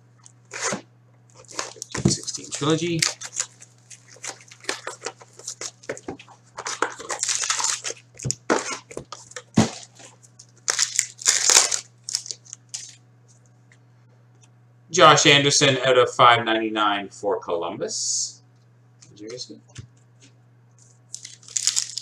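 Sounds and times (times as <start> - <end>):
wrapper tearing: 0.5 - 6.0, 6.6 - 13.0, 21.1 - 22.0
card pack wrappers crinkling: 1.3 - 13.0, 20.8 - 22.0.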